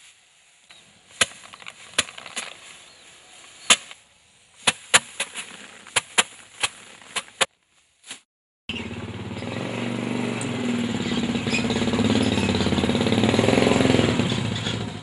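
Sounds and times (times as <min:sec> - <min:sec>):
sheaves thwacking wooden board: 0:01.1 - 0:04.0, 0:04.6 - 0:08.3.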